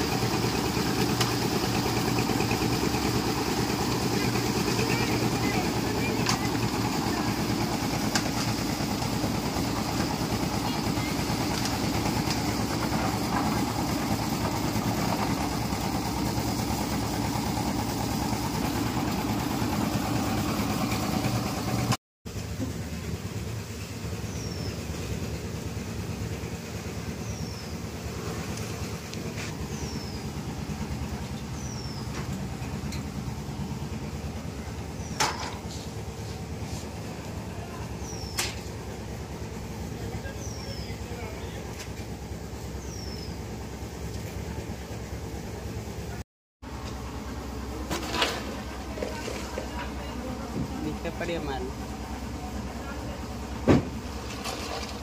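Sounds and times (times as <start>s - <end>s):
concrete mixer running: 0.0s - 55.0s
falling bird chirps: 38.0s - 38.7s.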